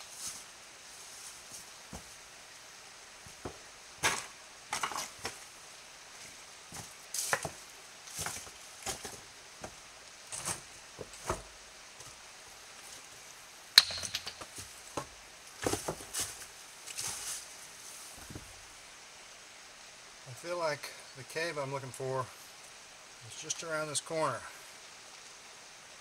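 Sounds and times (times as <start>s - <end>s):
footsteps crunching dry leaves: 6.2s - 11.3s, 15.6s - 18.4s.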